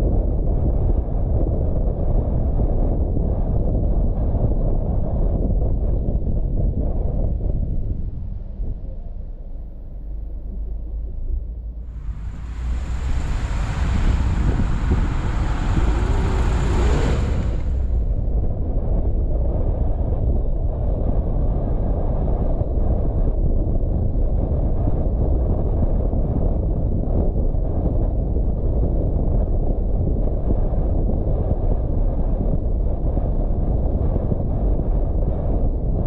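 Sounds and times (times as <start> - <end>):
tyre and road rumble: 11.8 - 18.7
wind buffeting microphone: 11.8 - 36.0.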